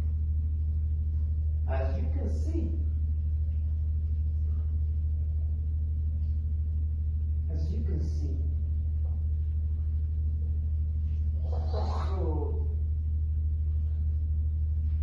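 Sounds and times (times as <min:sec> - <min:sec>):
steady low hum: 0:00.0 - 0:15.0
murmured voice: 0:11.4 - 0:12.8.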